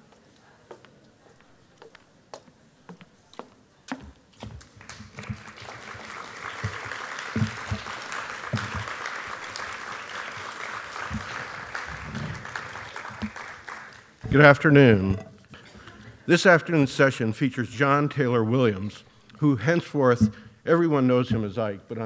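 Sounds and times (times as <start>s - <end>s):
audience applauding: 4.6s - 14.6s.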